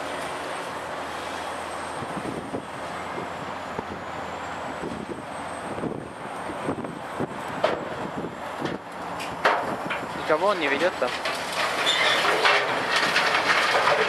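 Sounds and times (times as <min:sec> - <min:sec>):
excavator diesel engine running: 0:00.0 - 0:14.0
rubble crashing into steel truck bed: 0:09.4 - 0:14.0.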